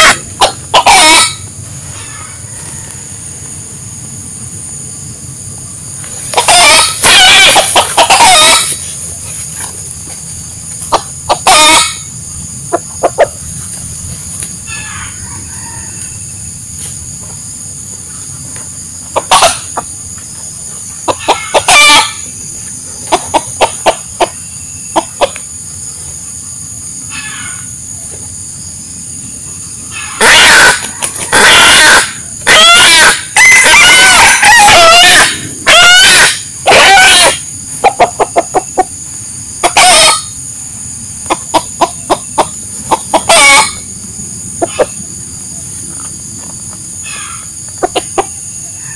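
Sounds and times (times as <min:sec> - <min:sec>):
rooster crowing: 0:00.0 - 0:03.5, 0:06.3 - 0:08.8, 0:14.6 - 0:16.6, 0:21.1 - 0:22.3, 0:27.1 - 0:27.7, 0:29.9 - 0:38.9, 0:39.6 - 0:40.4, 0:43.1 - 0:43.9, 0:47.0 - 0:48.9
rooster clucking: 0:00.0 - 0:04.1, 0:05.6 - 0:28.3, 0:29.8 - 0:48.9.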